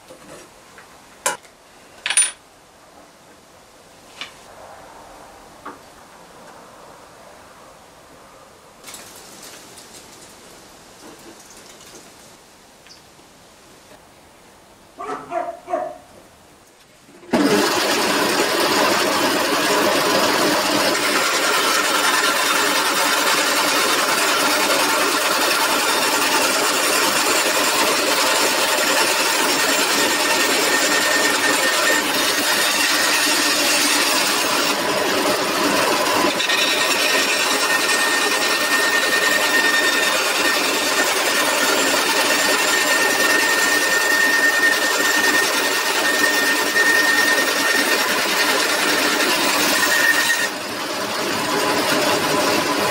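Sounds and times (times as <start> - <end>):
thin steady whine: 3.0 - 9.4
bandsaw cutting wood: 17.3 - 52.9.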